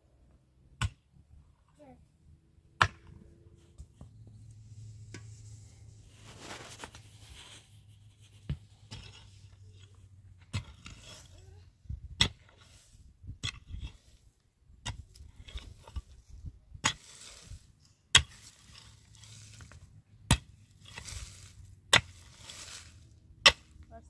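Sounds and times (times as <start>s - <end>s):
scraping and rustling: 3.5s - 11.7s, 14.9s - 23.8s.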